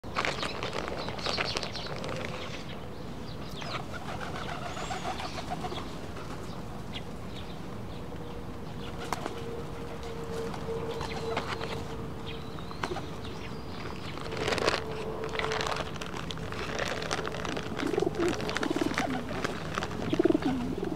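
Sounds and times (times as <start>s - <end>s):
pigeons cooing: 3.6s - 6.6s, 17.5s - 20.9s
pigeon wings fluttering: 3.9s - 6.5s, 9.0s - 11.8s, 14.3s - 20.9s.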